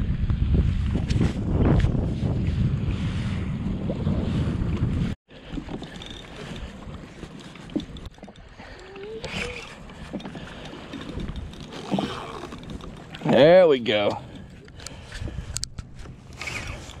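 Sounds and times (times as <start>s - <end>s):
wind buffeting microphone: 0.0s - 17.0s
lapping water: 5.3s - 15.5s.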